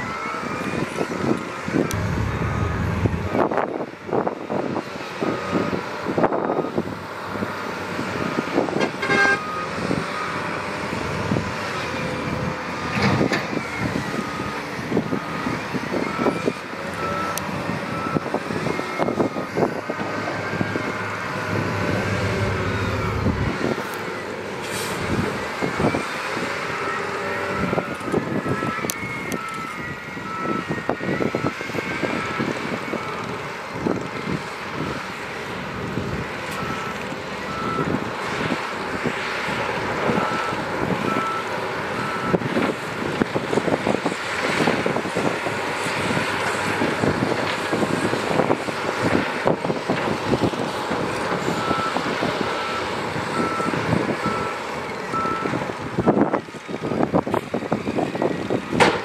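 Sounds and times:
reversing alarm beeping: 1.8 - 3.8, 13.5 - 24.4, 25.0 - 33.2, 36.5 - 38.0, 40.1 - 42.5, 51.4 - 57.1
heavy machinery clattering: 1.9 - 3.7.

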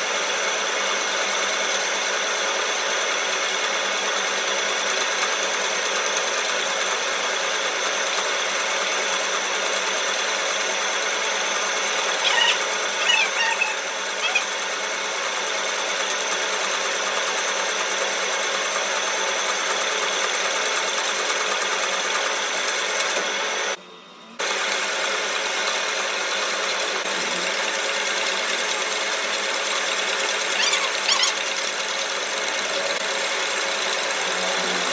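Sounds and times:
high squeals: 12.0 - 14.5, 30.4 - 31.6
metal lathe whirring: 24.4 - 34.9.

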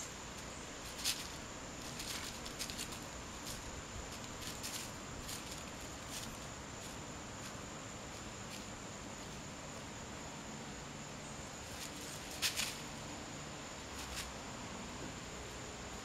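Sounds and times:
dry leaves rustling under paws: 0.0 - 9.9, 11.6 - 13.2, 13.8 - 14.4
high insect drone: 0.0 - 16.0.

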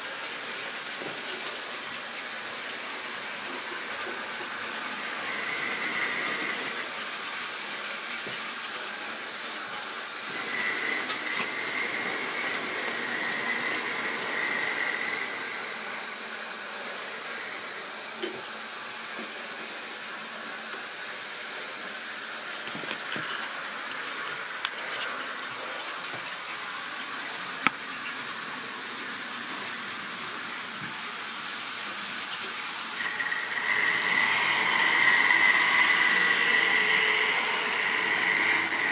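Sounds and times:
model train running on track: 0.0 - 18.4, 22.1 - 38.9.

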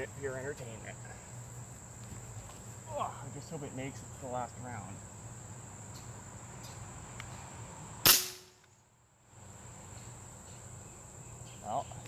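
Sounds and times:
air rifle shot: 8.0 - 8.6.

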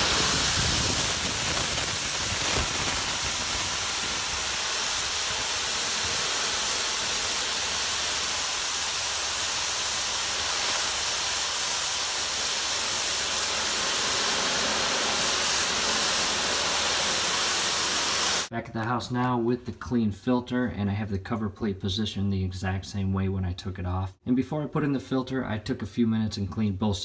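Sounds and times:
pressure washer spraying metal mesh: 0.0 - 18.5.

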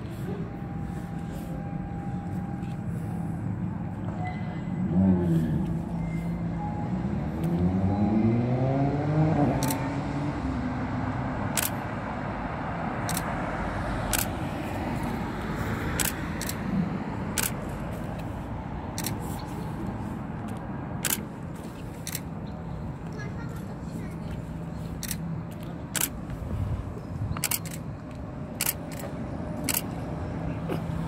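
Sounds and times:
traffic rumble: 0.0 - 31.0
vehicle accelerating: 4.2 - 20.0
sharp clicks: 9.6 - 9.8, 11.5 - 11.8, 13.0 - 13.3, 14.0 - 14.4, 16.0 - 16.6, 17.3 - 17.6, 27.3 - 27.8.

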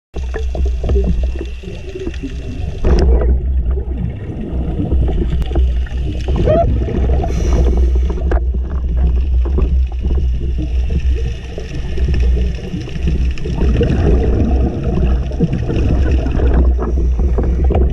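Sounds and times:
bubbles gurgling: 0.2 - 17.9
low underwater rumble: 0.2 - 17.9
diver regulator breathing: 7.0 - 8.9, 16.5 - 17.9.

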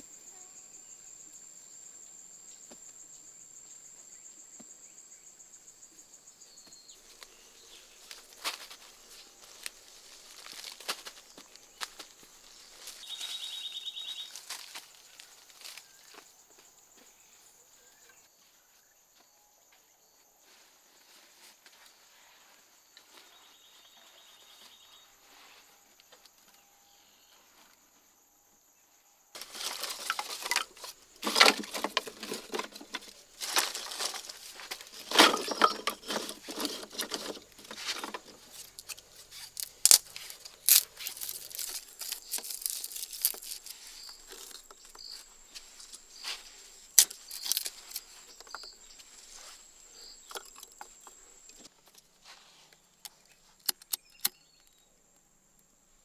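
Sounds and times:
insects chirring: 0.0 - 56.0
dry sticks rustling and crackling: 7.0 - 16.2, 29.4 - 54.4.

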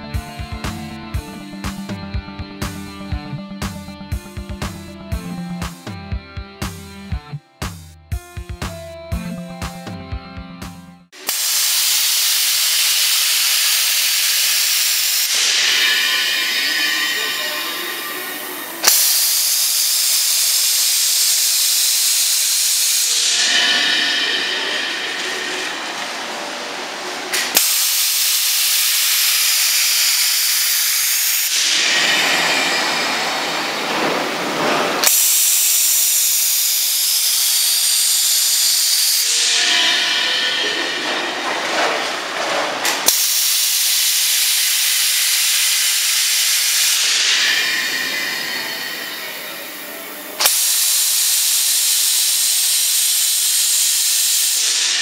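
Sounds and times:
compressed air hissing: 11.2 - 55.0.

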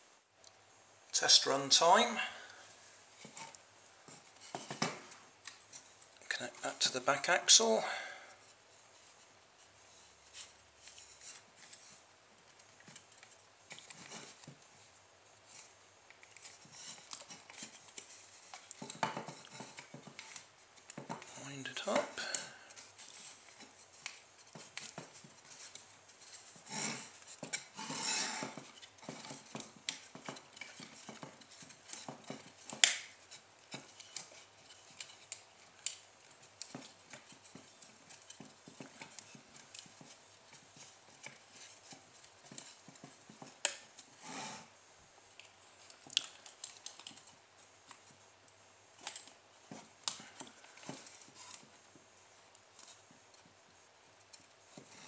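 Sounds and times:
small clicks and taps: 28.4 - 44.1, 45.3 - 48.2.

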